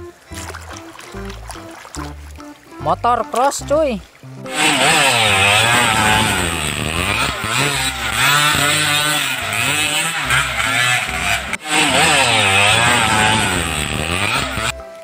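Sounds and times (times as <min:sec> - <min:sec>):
dirt bike engine revving: 0:04.5 - 0:14.8.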